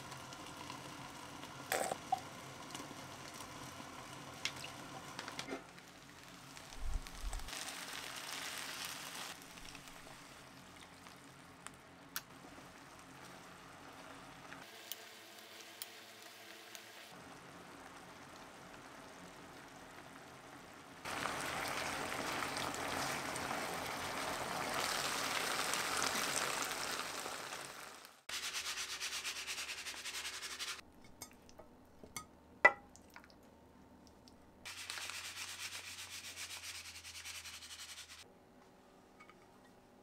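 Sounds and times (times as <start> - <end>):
rubbing or scraping: 35.0 - 38.2.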